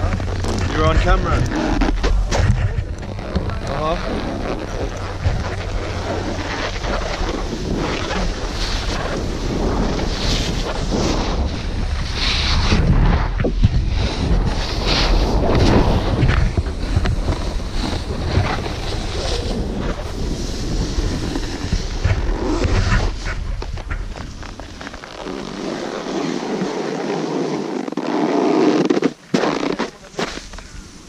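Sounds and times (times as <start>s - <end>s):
wind buffeting microphone: 0.0s - 24.7s
snowboard scraping on snow: 0.0s - 31.0s.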